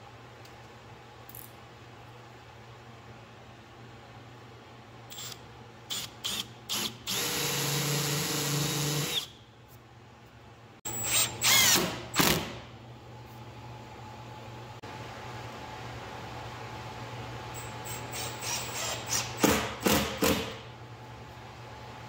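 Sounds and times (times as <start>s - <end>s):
power drill running: 5.1s - 9.3s, 10.9s - 12.0s.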